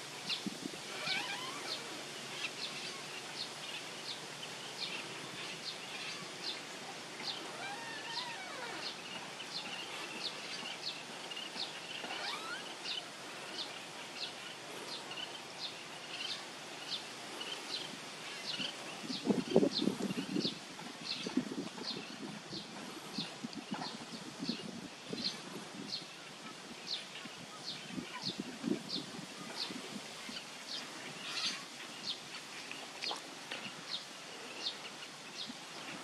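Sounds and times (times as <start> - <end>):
gliding bird calls: 0.9 - 3.2, 4.9 - 19.0.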